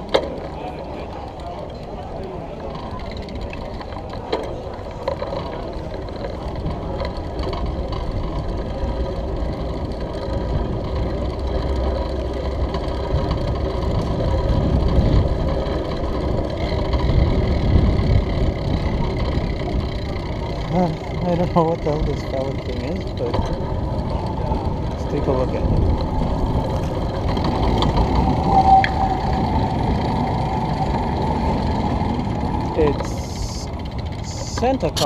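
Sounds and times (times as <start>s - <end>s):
bicycle rolling over brick paving: 0.0s - 35.0s
wind on microphone: 23.6s - 33.0s.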